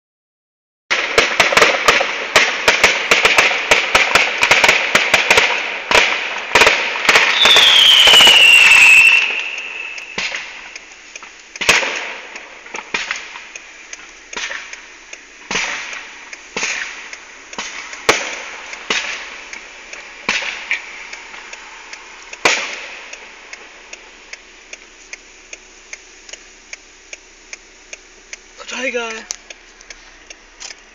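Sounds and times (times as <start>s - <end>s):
fireworks bangs and crackles: 0.9s - 24.2s
falling firework whistle: 1.0s - 10.9s.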